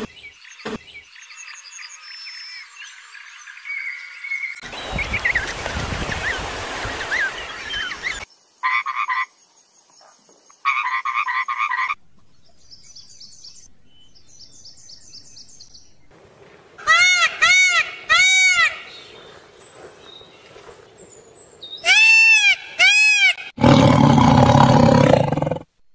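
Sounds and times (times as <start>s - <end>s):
frogs croaking: 8.6s - 12.0s.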